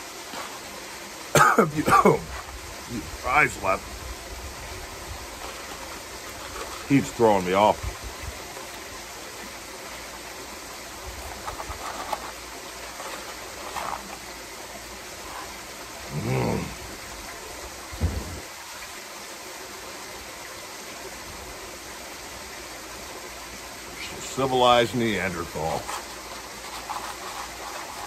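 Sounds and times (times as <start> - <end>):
waterfall splashing into pool: 0.0 - 11.5, 12.2 - 28.0
low vocal hum: 15.4 - 17.0
low thump: 18.0 - 18.4.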